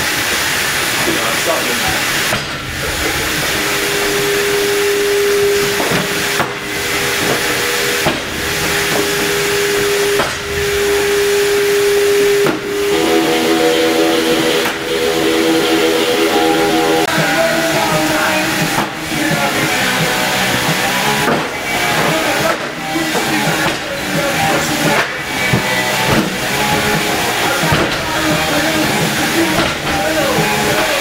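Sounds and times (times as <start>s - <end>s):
loud steady hiss: 0.0s - 31.0s
steady tones: 0.1s - 31.0s
steady hum tone: 2.3s - 20.9s.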